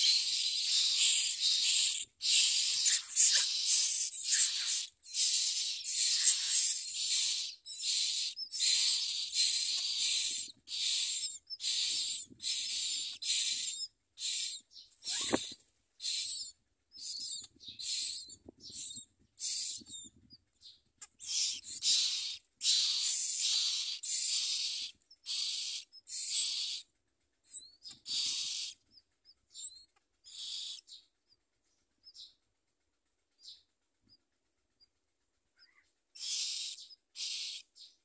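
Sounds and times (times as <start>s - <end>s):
nestlings begging calls: 0.0s - 31.1s, 35.6s - 38.0s.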